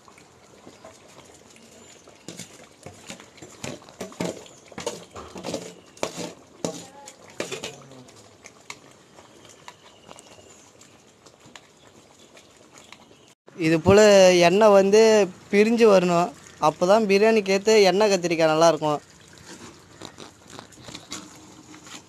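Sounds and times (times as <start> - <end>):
ladle stirring in pot: 0.1 - 13.3, 19.0 - 22.0
metal ladle scraping steel bowl: 2.3 - 7.8.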